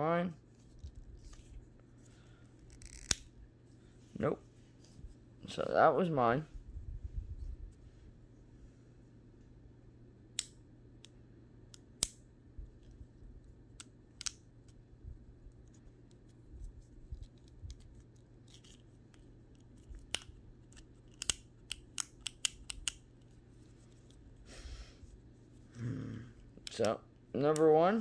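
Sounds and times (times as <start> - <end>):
low hum: 0.4 - 20.8.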